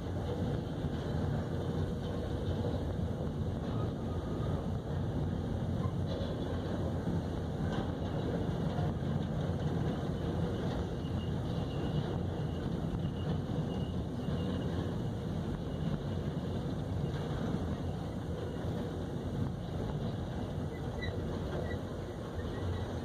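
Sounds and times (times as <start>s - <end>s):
train wheels rumbling on rails: 0.0s - 23.0s
high wheel squeals: 9.9s - 18.8s, 19.6s - 23.0s.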